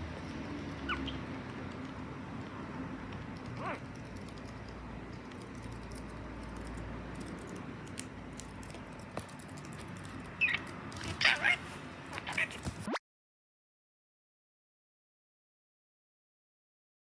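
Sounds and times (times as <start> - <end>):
budgerigar chirp: 0.8 - 1.2.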